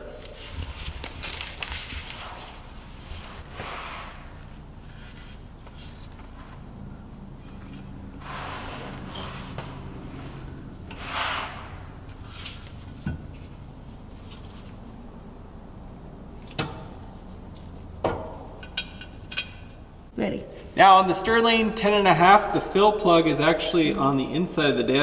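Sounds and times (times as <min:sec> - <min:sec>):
low steady hum: 0:00.0 - 0:25.0
metal cover scraping: 0:07.4 - 0:13.6.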